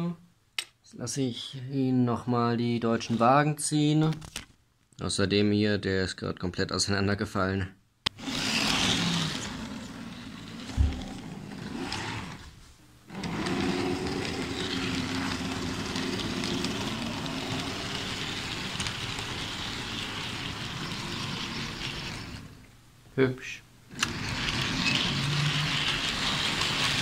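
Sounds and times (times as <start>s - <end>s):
model train motor hum: 8.2s - 12.4s, 13.1s - 22.6s, 23.9s - 27.0s
wheels running on track: 8.2s - 12.4s, 13.1s - 22.6s, 23.9s - 27.0s.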